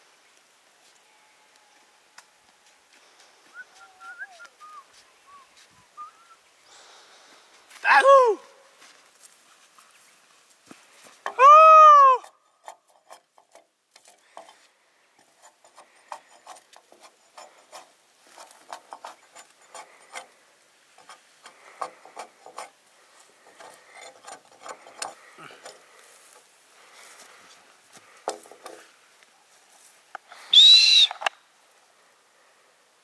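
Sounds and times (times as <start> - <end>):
faint clicks and scraping: 12.2 - 30.3
loud rising and falling call: 30.3 - 31.4.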